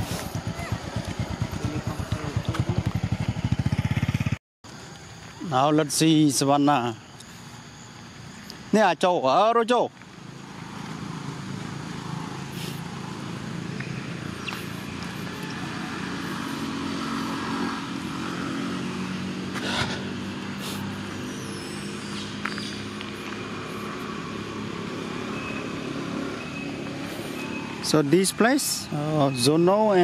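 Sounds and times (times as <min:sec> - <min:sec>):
engine running: 0:00.0 - 0:04.4, 0:10.2 - 0:29.3.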